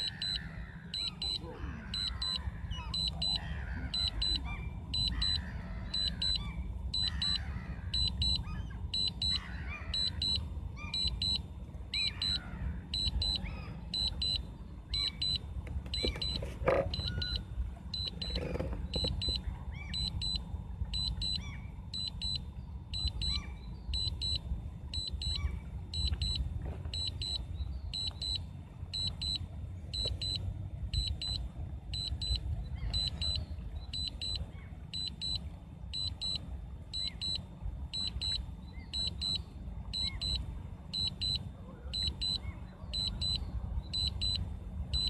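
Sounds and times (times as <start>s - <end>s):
steady low rumble: 0.0s - 45.0s
high-pitched double beep: 1.0s - 2.4s, 3.0s - 3.4s, 8.0s - 8.4s, 9.0s - 9.3s, 10.0s - 10.4s, 11.0s - 11.4s, 13.0s - 13.4s, 14.0s - 14.4s, 20.0s - 20.4s, 24.0s - 24.4s, 26.0s - 26.4s, 32.0s - 32.4s, 34.0s - 34.4s, 37.0s - 37.4s, 40.0s - 40.4s, 44.0s - 44.4s.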